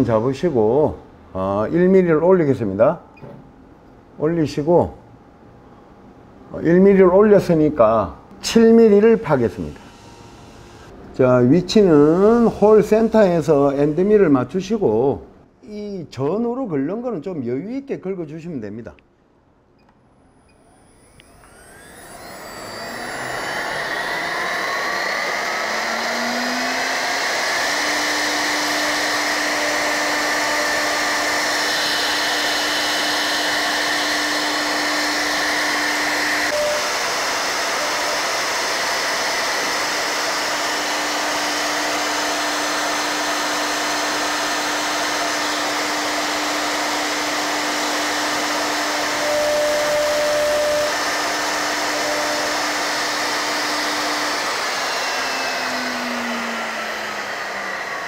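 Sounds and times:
router spindle whining: 20.3s - 58.0s.

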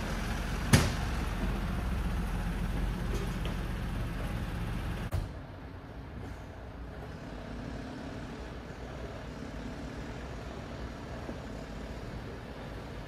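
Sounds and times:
distant truck diesel engine rumble: 0.0s - 5.2s.

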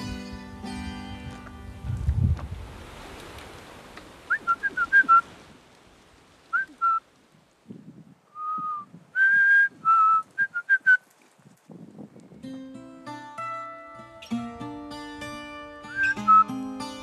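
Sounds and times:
man whistling: 4.3s - 5.2s, 6.5s - 7.0s, 8.3s - 11.0s, 15.9s - 16.5s.

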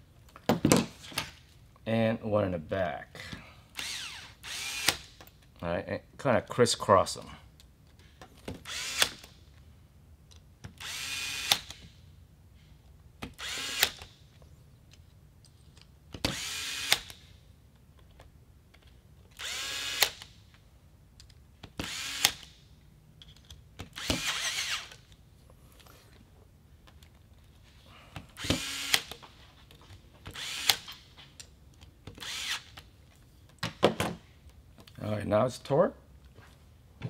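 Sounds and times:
electric screwdriver whirring: 13.4s - 14.1s, 16.3s - 17.2s, 19.4s - 20.2s, 21.8s - 22.5s, 23.9s - 25.0s, 28.4s - 29.2s, 32.2s - 32.8s.

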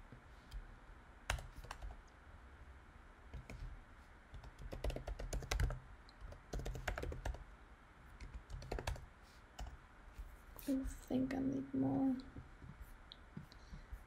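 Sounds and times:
typing on computer keyboard: 1.3s - 2.0s, 4.4s - 7.4s, 8.2s - 9.0s.

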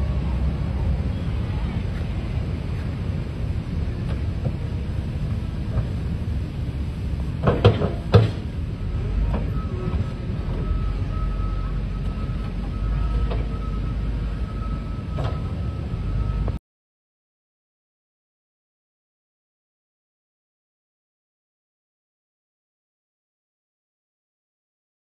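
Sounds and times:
wheel loader engine rumble: 0.0s - 16.6s
loud clattering knocks: 7.4s - 8.6s.

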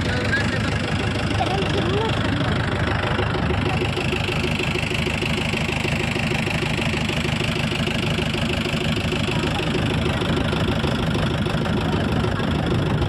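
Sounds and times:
motorboat engine running: 0.0s - 13.0s.

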